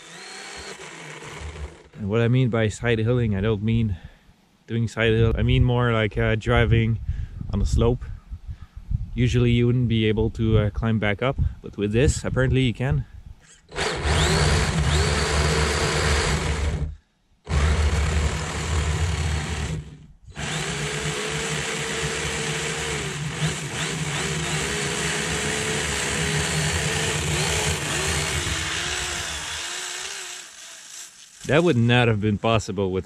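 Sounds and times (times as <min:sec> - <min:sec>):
electric motor whining: 0:00.0 - 0:02.0, 0:13.7 - 0:16.9, 0:17.5 - 0:31.6.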